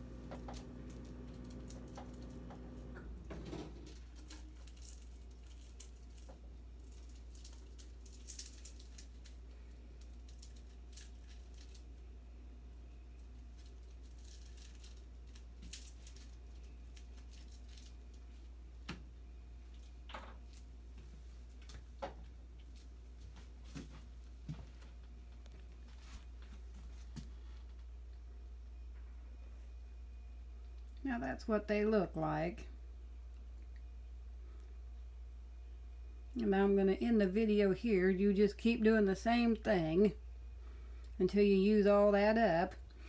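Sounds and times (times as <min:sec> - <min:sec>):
low steady hum: 0:00.0 - 0:43.0
second steady hum: 0:00.0 - 0:43.0.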